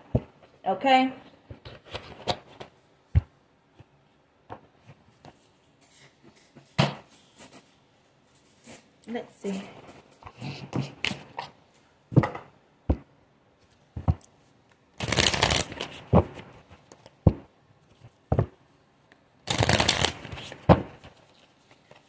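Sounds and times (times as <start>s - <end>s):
cards snapping: 15.0s - 15.9s, 19.5s - 20.7s
cards riffle shuffling: 15.0s - 17.1s, 19.5s - 22.0s.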